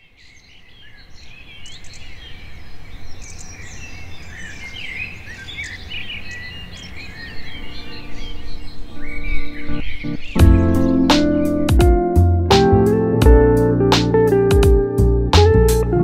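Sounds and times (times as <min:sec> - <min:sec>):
birds chirping and singing: 0:00.0 - 0:12.3.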